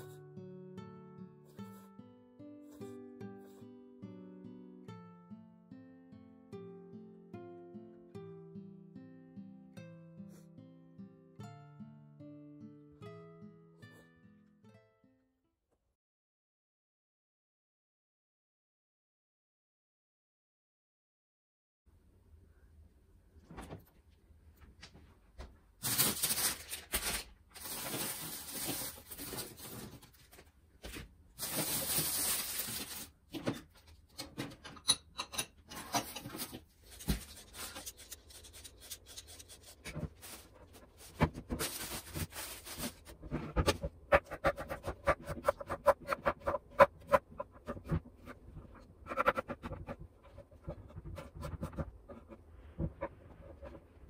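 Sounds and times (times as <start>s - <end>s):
rustling and handling: 23.4s - 34.6s, 35.8s - 54.0s.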